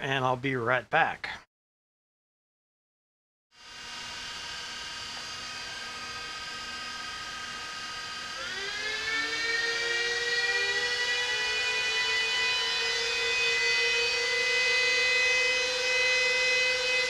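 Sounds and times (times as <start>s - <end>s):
cooling fans whining: 3.6s - 17.0s.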